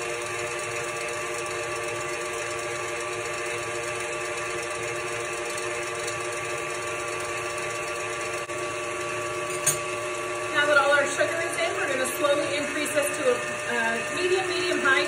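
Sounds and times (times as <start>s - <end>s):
stand mixer whisking: 0.0s - 15.0s.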